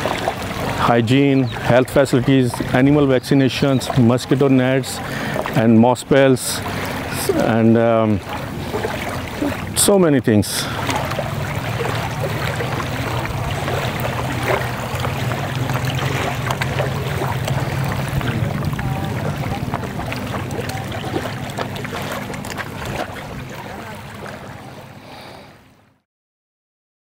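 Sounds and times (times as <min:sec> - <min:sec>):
motor running: 0:10.7 - 0:24.7.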